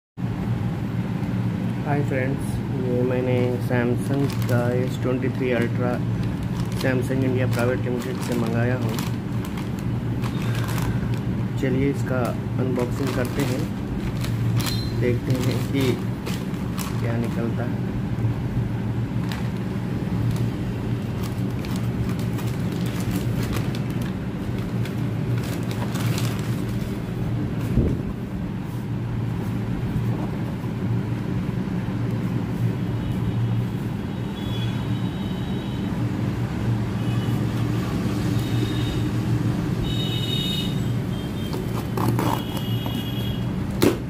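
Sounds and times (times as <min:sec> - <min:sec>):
plastic mailer crinkling: 0:03.4 - 0:17.8, 0:19.0 - 0:27.7, 0:41.3 - 0:44.0.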